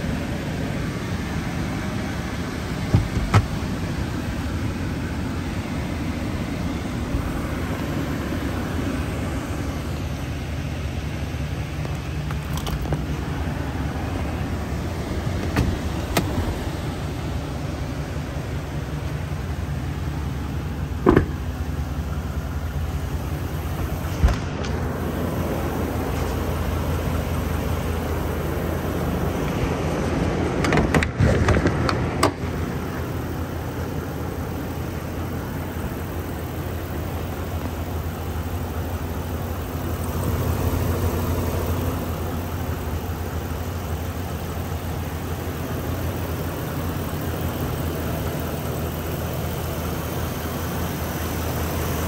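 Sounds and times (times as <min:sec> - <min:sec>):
engine idling: 0:00.0 - 0:52.0.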